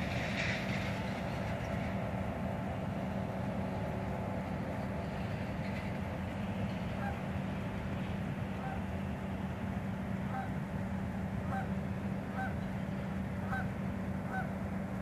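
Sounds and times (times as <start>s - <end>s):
outdoor background rumble: 0.0s - 15.0s
geese honking: 7.0s - 7.2s, 8.6s - 8.9s, 10.3s - 10.6s, 11.4s - 12.7s, 13.4s - 14.6s.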